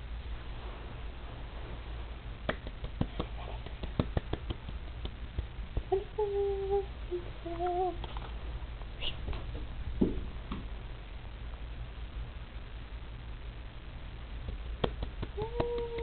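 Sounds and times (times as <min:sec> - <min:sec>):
person humming: 0:05.8 - 0:08.1, 0:15.2 - 0:16.0.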